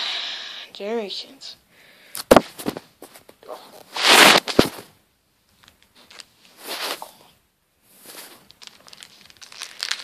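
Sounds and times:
loud rustling burst: 0:04.0 - 0:04.8.

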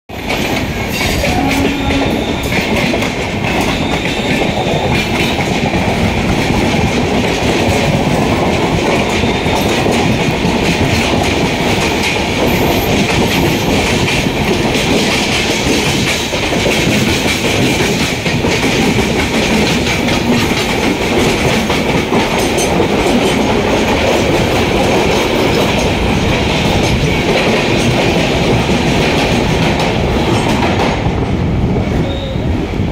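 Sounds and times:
train wheels clattering over rail joints: 0:00.1 - 0:31.4.

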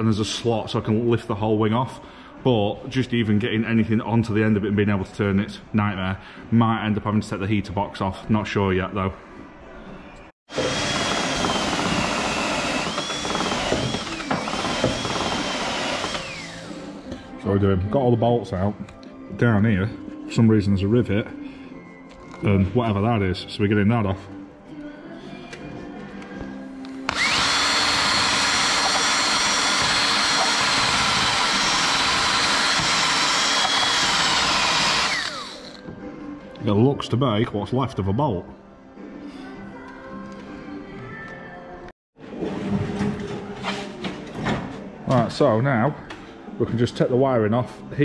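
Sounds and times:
cordless power tool motor whining: 0:10.5 - 0:17.1, 0:27.1 - 0:35.8.

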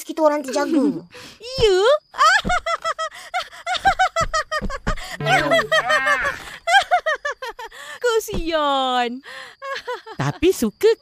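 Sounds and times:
woman laughing in cartoon voice: 0:02.2 - 0:07.7.

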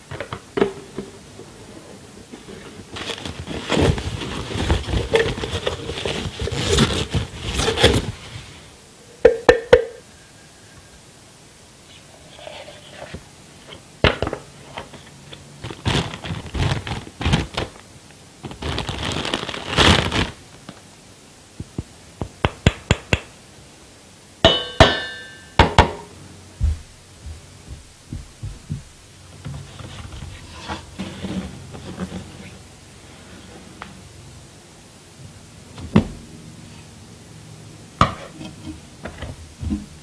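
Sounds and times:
plastic bag rustling: 0:01.6 - 0:08.7, 0:14.9 - 0:20.9
ringing metallic clink: 0:24.5 - 0:25.6.

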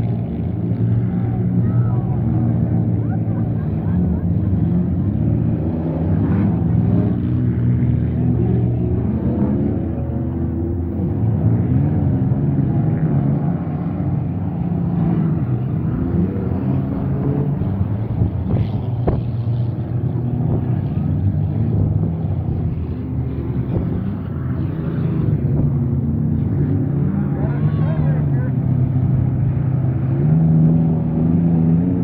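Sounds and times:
truck engines racing: 0:00.0 - 0:32.0.

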